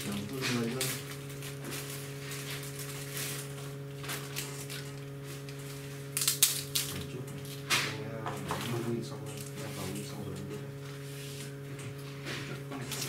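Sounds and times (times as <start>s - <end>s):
packaging rustling and crackling: 0.0s - 7.6s
low electrical hum: 0.0s - 13.0s.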